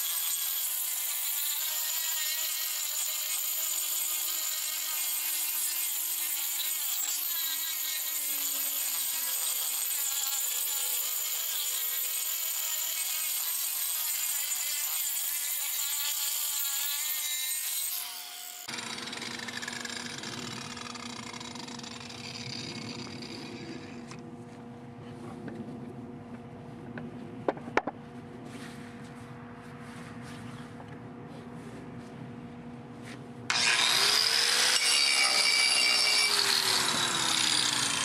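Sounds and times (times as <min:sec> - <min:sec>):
angle grinder grinding wood: 0:00.0 - 0:24.2, 0:33.5 - 0:38.0
grinder whirring down: 0:00.0 - 0:24.2, 0:33.5 - 0:38.0.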